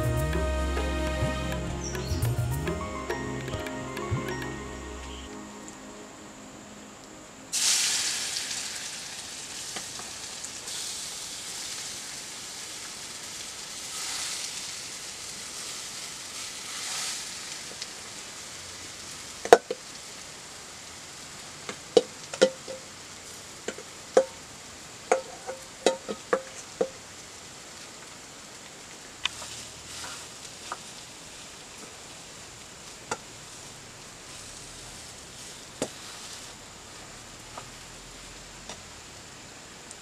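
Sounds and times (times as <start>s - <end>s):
food sizzling in hot oil: 7.5s - 20.2s.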